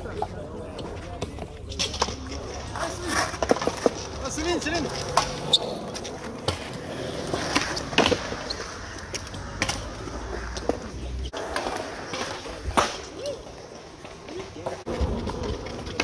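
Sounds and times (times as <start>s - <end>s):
skateboard wheels rolling on concrete: 0.0s - 16.0s
skateboards clacking: 0.0s - 16.0s.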